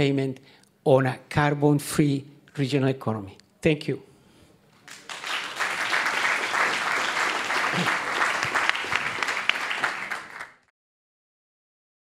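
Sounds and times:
audience applauding: 0:04.8 - 0:10.7.

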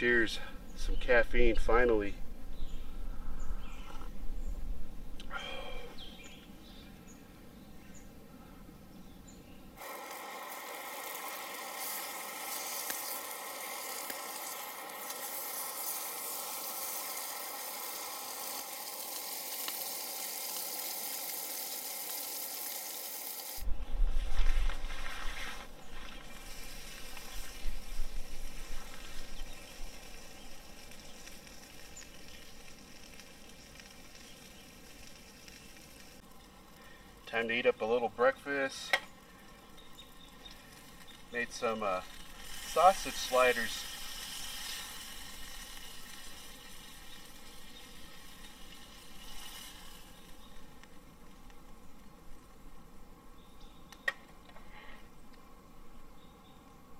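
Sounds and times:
outdoor ambience: 0:00.0 - 0:56.9
sausage sizzling in a skillet: 0:09.8 - 0:23.7, 0:24.9 - 0:37.4, 0:38.7 - 0:51.0.

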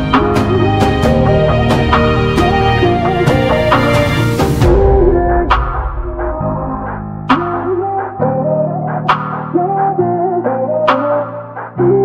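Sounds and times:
music with sustained chords: 0:00.0 - 0:08.8
sharp percussive hit: 0:00.1 - 0:07.9.

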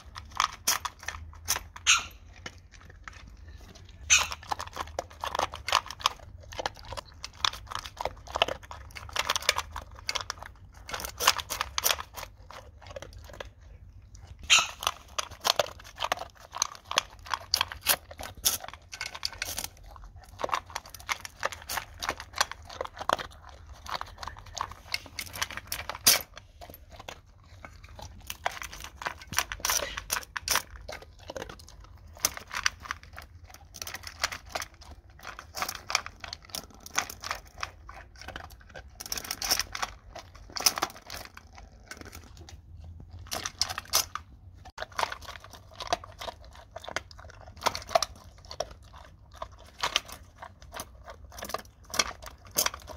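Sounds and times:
dog crunching dry kibble: 0:00.0 - 0:52.9.

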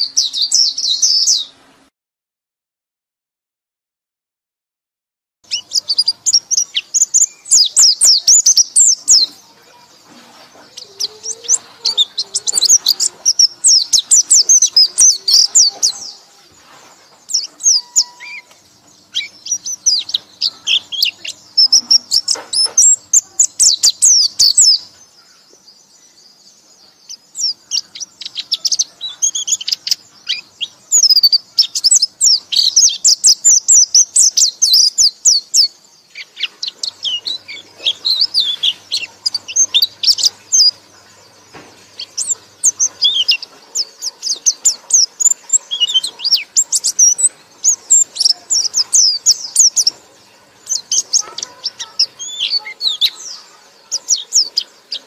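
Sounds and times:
small songbird twittering: 0:00.0 - 0:01.6, 0:05.5 - 0:55.0.

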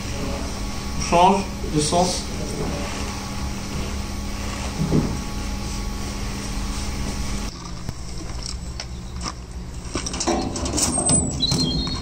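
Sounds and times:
room noise with low hum: 0:00.0 - 0:12.0.

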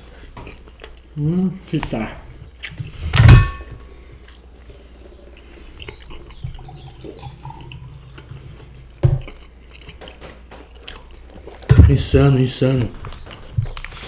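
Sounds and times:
quiet chewing: 0:00.0 - 0:01.2, 0:03.8 - 0:11.7, 0:12.9 - 0:14.0
loud knock with metallic ring: 0:03.2 - 0:03.7.

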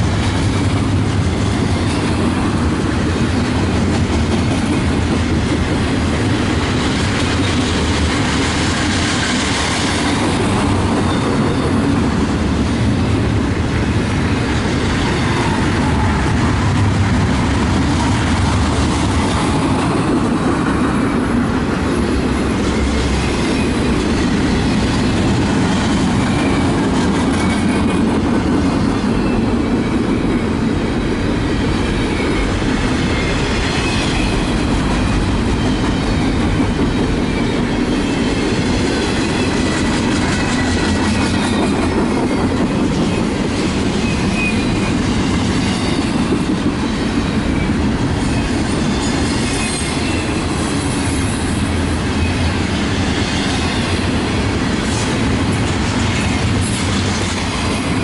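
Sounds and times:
train wheels rumbling on rails: 0:00.0 - 0:58.0
high wheel squeal: 0:31.6 - 0:46.2, 0:47.3 - 0:54.0.

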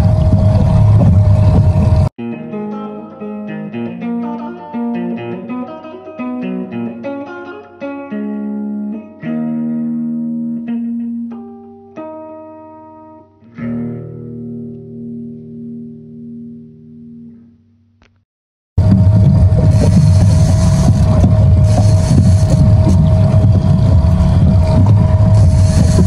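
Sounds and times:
guitar music: 0:00.0 - 0:17.5.

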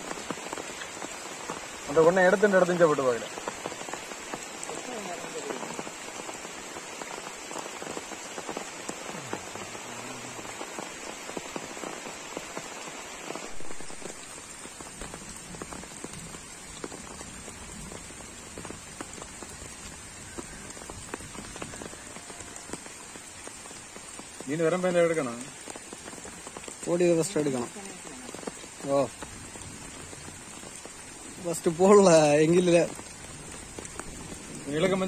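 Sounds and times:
rain falling on a pond: 0:00.0 - 0:35.0.

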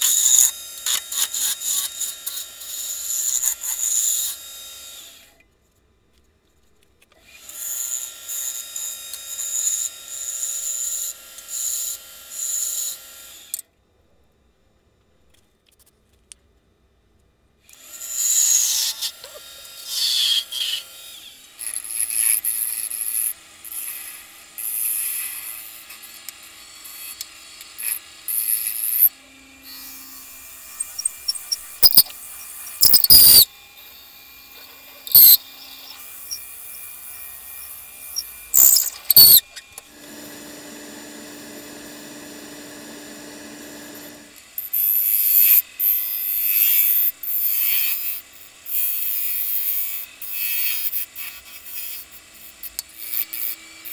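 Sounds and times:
wood lathe cutting and drilling: 0:27.6 - 0:49.7.

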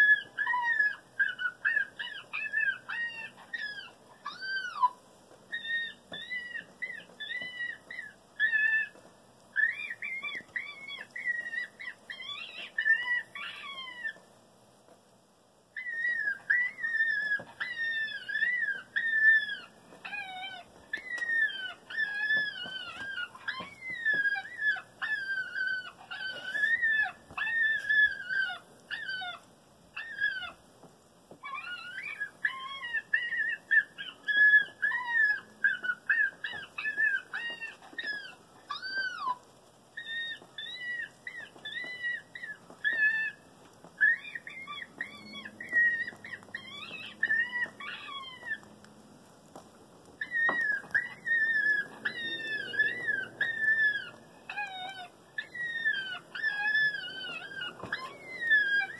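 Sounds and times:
electronic fox call whining cries: 0:50.2 - 0:58.9.

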